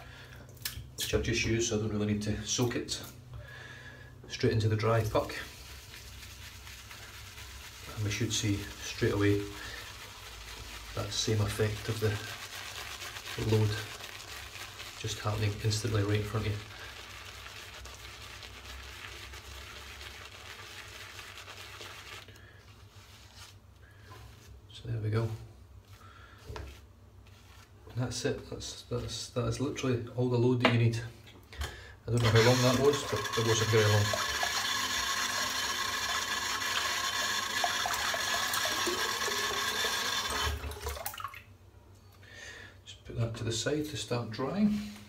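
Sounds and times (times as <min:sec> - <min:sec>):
water running: 0:04.3 - 0:22.4, 0:32.1 - 0:41.5
brush scratching shaving soap: 0:04.8 - 0:23.3, 0:32.3 - 0:40.3.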